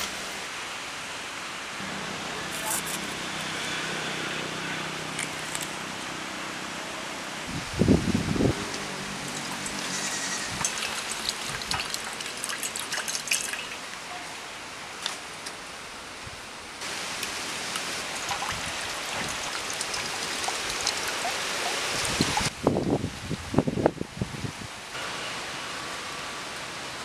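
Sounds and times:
water trickling into a steel bowl: 9.3s - 13.9s, 17.9s - 22.5s.

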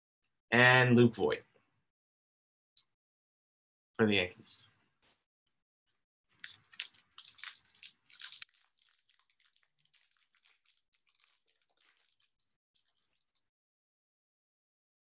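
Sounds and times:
foil wrapper crinkling and tearing: 6.3s - 13.4s
soft rustling of cards: 6.3s - 13.4s.

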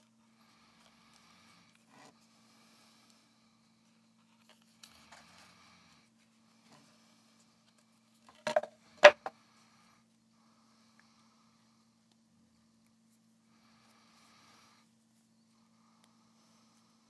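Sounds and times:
plastic case handling: 8.3s - 9.3s.

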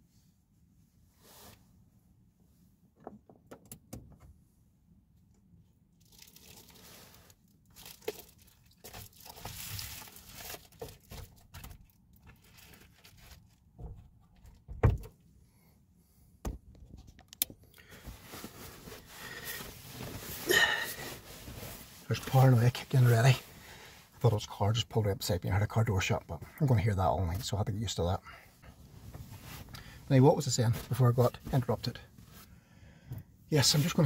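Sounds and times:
rustling and crinkling handling: 6.0s - 14.7s, 16.7s - 23.9s, 28.6s - 32.5s.

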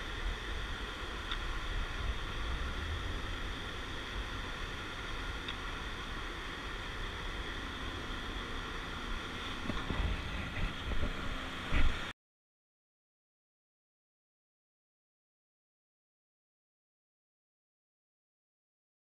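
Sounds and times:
steady rushing noise: 0.0s - 12.1s.

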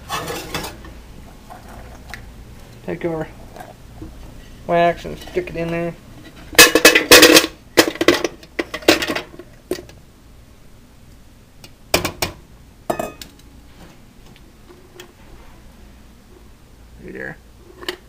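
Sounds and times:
metal coffee pot clattering: 0.0s - 0.8s, 6.6s - 9.3s.

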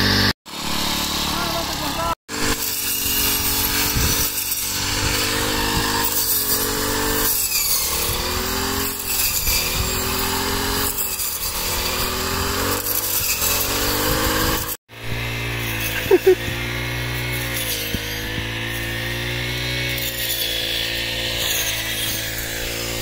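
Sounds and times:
rasping hiss of cutting wheat: 0.0s - 23.0s
small petrol engine running hard: 0.0s - 23.0s.

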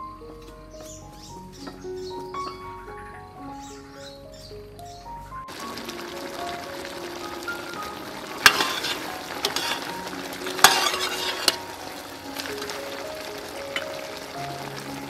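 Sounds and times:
pork sizzling in sauce: 5.5s - 15.0s
ladle stirring: 7.8s - 14.3s.

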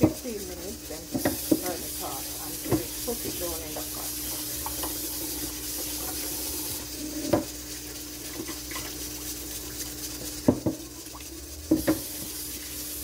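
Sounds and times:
steady hiss and hum: 0.0s - 13.0s
tap running: 0.0s - 13.0s
water swishing in pot: 0.0s - 13.0s
metal pot knocking against sink: 10.4s - 10.8s, 11.7s - 12.1s.

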